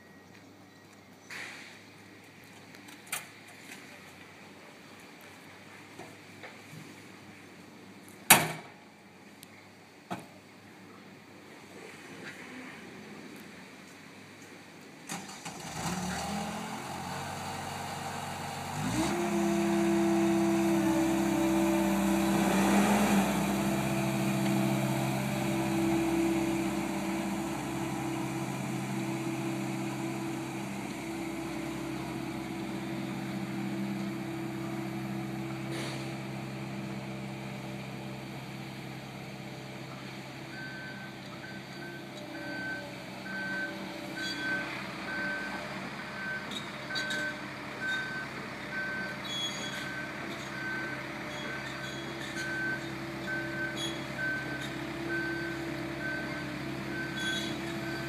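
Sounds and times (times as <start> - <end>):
reversing alarm beeps: 0.0 - 1.2, 40.5 - 45.6, 46.2 - 58.0
diesel engine running: 15.1 - 58.0.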